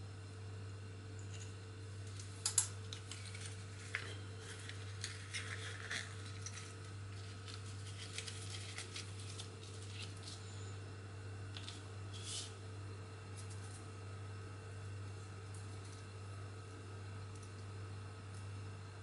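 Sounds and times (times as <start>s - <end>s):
steady low hum: 0.0s - 19.0s
plastic bag crinkling: 3.1s - 10.5s.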